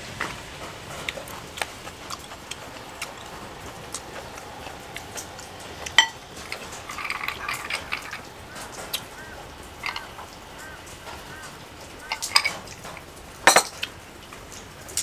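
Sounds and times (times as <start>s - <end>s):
glass tumbler clink: 5.9s - 8.3s, 9.8s - 10.2s, 12.0s - 12.7s, 13.4s - 13.8s
ice clinking in glass: 5.9s - 8.3s, 9.8s - 10.2s, 12.0s - 12.6s, 13.4s - 13.8s.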